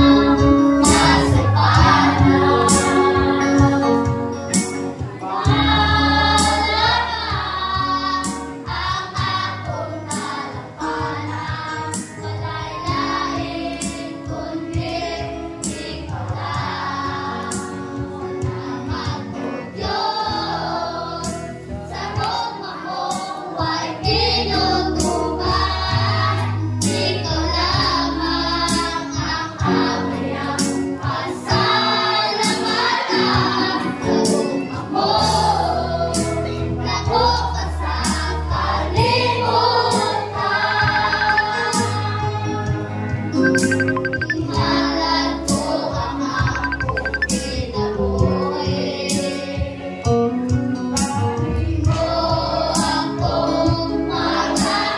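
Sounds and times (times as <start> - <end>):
low instrumental backing: 0.0 - 9.4
group singing a worship song: 0.0 - 54.9.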